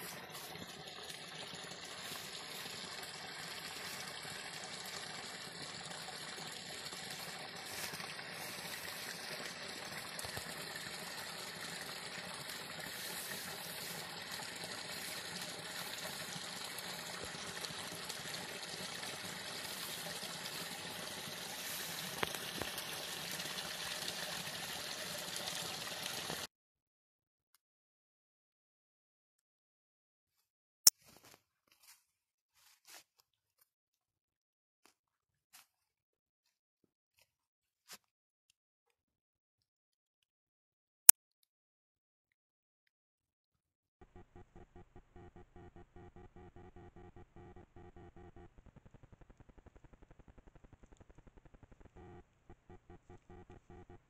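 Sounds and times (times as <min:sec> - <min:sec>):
stream trickling: 0:00.0 - 0:26.5.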